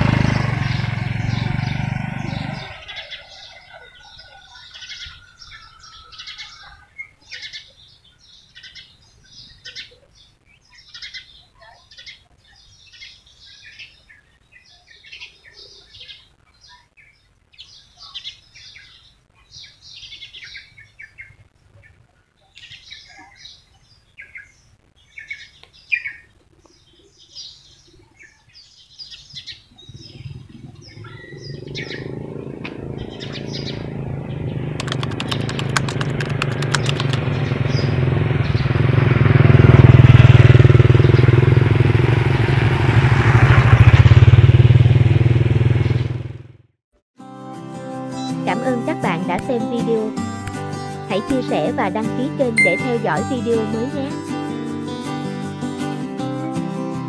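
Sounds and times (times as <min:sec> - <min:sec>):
engine approaching: 0:00.0 - 0:05.0, 0:29.8 - 0:46.7
small birds chirping: 0:00.0 - 0:38.9, 0:48.1 - 0:54.4.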